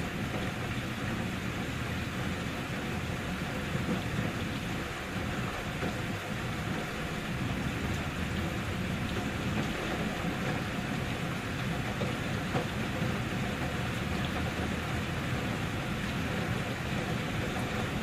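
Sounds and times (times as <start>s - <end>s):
steady rain hissing: 0.0s - 18.0s.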